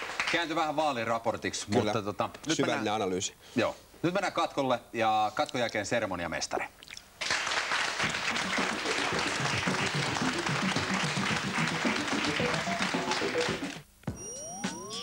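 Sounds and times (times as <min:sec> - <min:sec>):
audience applauding: 0:00.0 - 0:00.6, 0:07.2 - 0:13.8
music playing: 0:08.0 - 0:15.0.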